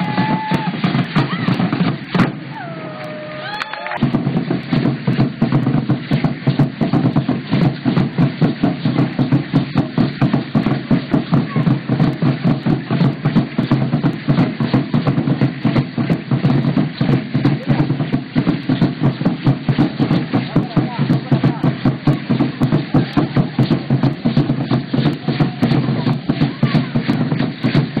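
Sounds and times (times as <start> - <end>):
steady drumming: 0.0 - 28.0.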